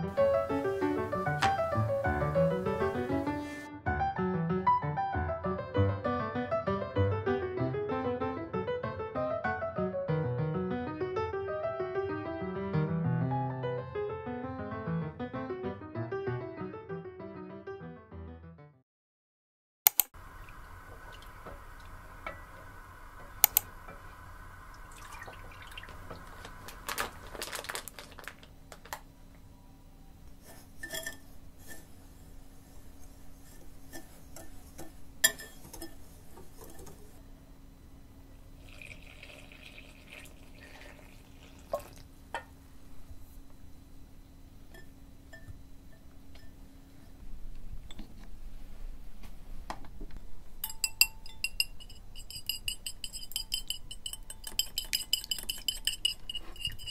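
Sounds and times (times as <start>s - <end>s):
whisk scraping a glass bowl: 30.4s - 32.0s, 33.0s - 37.1s, 51.2s - 56.9s
whisking egg in ceramic bowl: 50.6s - 56.9s.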